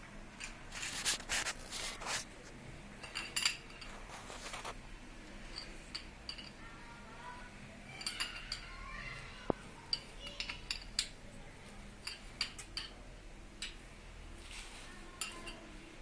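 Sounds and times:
metal fittings clinking: 0:03.0 - 0:04.1, 0:05.5 - 0:06.6, 0:07.9 - 0:08.7, 0:09.9 - 0:11.2, 0:12.0 - 0:13.0, 0:15.2 - 0:15.6.

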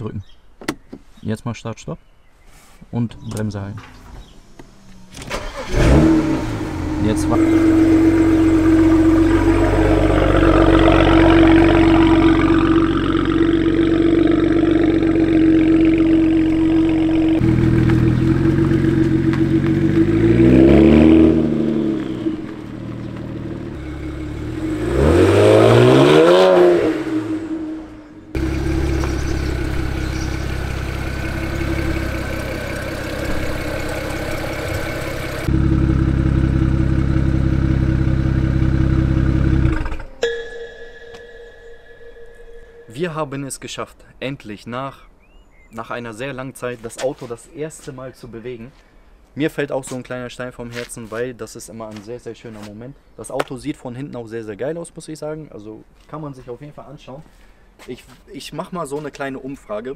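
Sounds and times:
car engine revving: 0:05.0 - 0:40.2.

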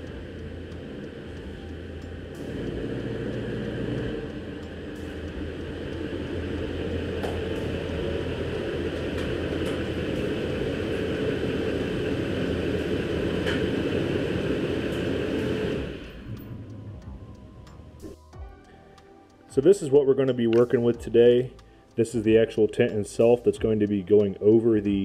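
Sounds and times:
diesel truck engine rumbling: 0:00.0 - 0:18.3.

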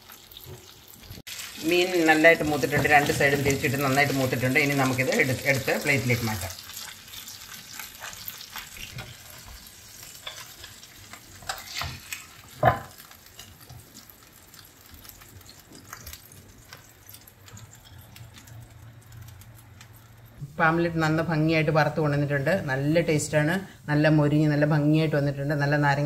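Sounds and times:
fish sizzling in oil: 0:00.0 - 0:20.4
spatula scraping a pan: 0:07.7 - 0:13.5.

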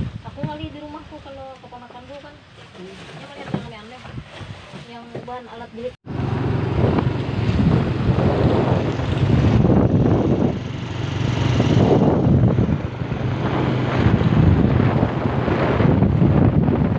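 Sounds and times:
wind buffeting microphone: 0:00.0 - 0:02.4, 0:03.2 - 0:16.9
motorcycle engine running: 0:06.0 - 0:16.9.

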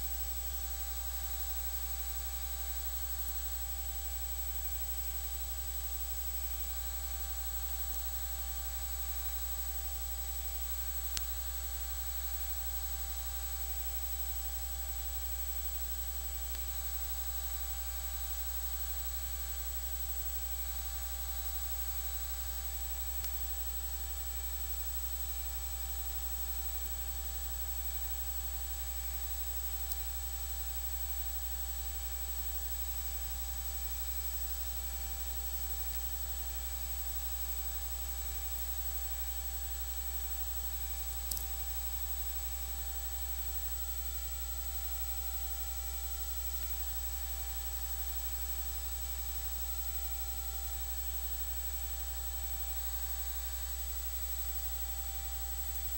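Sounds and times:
low electrical hum with buzz: 0:00.0 - 0:55.9
faint click: 0:11.1 - 0:11.4, 0:16.5 - 0:16.8, 0:23.2 - 0:23.5, 0:29.8 - 0:30.1, 0:40.9 - 0:42.4.

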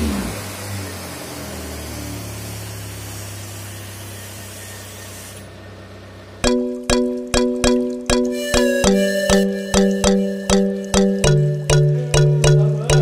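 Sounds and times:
spray gun hissing: 0:02.7 - 0:05.4.

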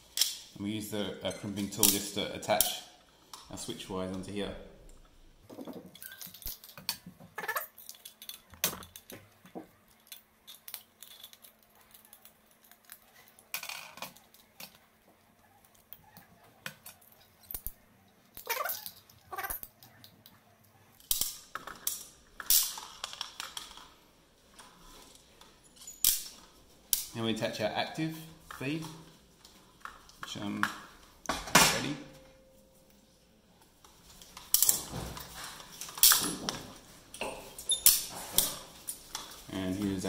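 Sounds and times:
pliers and wires handled: 0:00.0 - 0:00.6, 0:04.9 - 0:15.0, 0:15.6 - 0:20.4, 0:21.0 - 0:27.2, 0:33.7 - 0:40.0.

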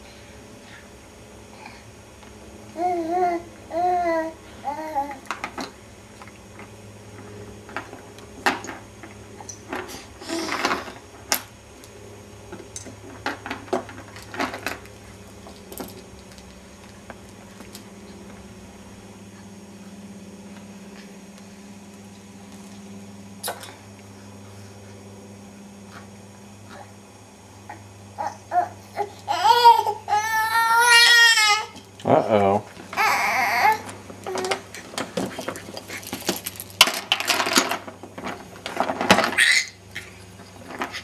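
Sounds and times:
steady low hum: 0:00.0 - 0:41.0
plastic toys clicking and knocking: 0:32.9 - 0:41.0.

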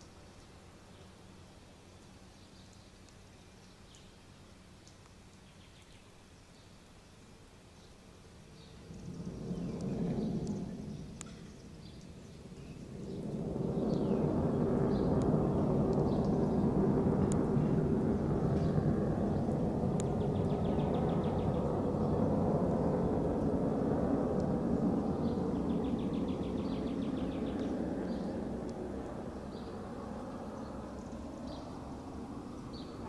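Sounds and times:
birds chirping: 0:07.8 - 0:23.5, 0:24.8 - 0:33.0
fighter jet roar: 0:08.7 - 0:33.0.

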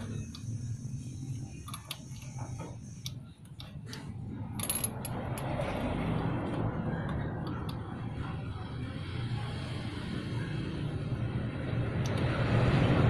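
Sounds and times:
passing vehicle rumble: 0:03.8 - 0:13.0.

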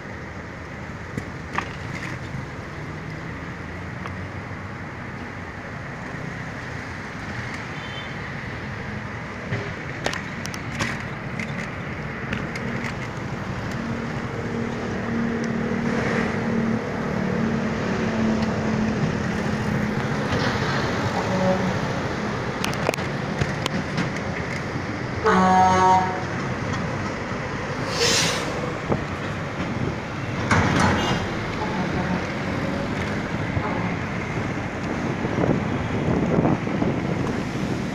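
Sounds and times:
car and motorcycle engines: 0:00.0 - 0:25.3, 0:26.0 - 0:37.9.

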